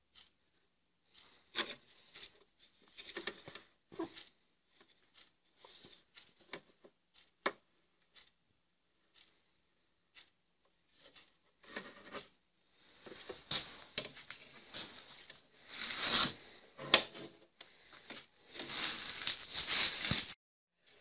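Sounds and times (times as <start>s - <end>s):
hands rubbing metal housing: 18.6s - 20.4s.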